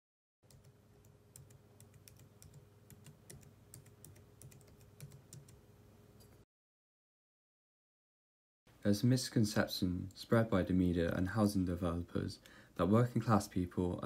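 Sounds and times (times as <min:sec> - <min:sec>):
keyboard typing: 0:00.4 - 0:05.6.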